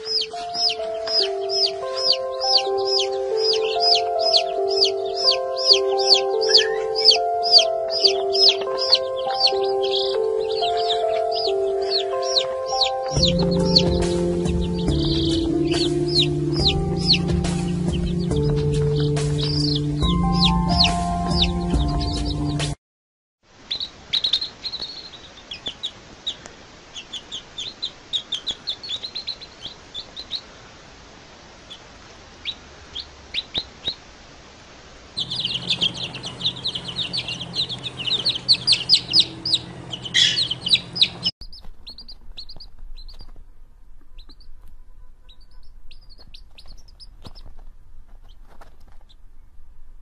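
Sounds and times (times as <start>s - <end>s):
baby chicks peeping: 0.0s - 22.8s, 23.6s - 30.7s, 31.4s - 34.1s, 35.2s - 49.6s
low hum: 35.2s - 46.1s.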